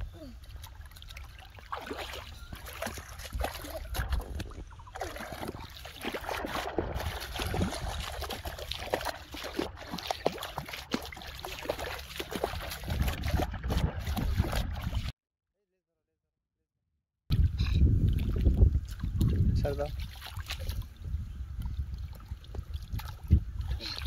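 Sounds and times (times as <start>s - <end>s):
water splashing and sloshing: 0.1s - 15.1s, 17.3s - 24.0s
plastic tub pushed through water: 1.6s - 15.1s.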